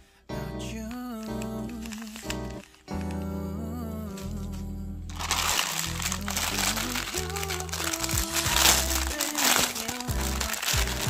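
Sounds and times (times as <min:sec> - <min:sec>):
pop music: 0:00.3 - 0:11.0
plastic bags crinkling: 0:01.0 - 0:03.3, 0:05.1 - 0:11.0.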